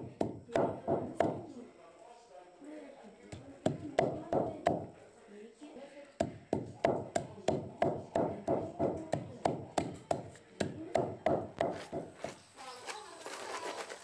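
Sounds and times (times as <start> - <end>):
pestle pounding corn in mortar: 6.2 - 12.2.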